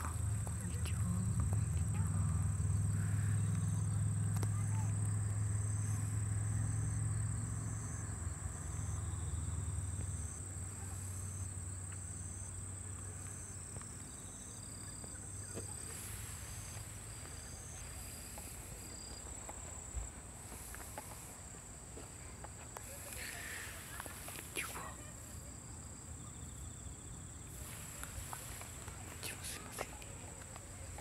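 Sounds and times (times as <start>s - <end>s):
insects singing: 0.0s - 21.5s, 22.2s - 31.0s.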